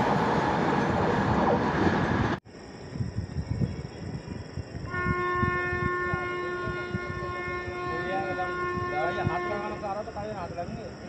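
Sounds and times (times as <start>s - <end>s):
train rushing past: 0.0s - 2.4s
distant locomotive horn: 4.9s - 10.2s.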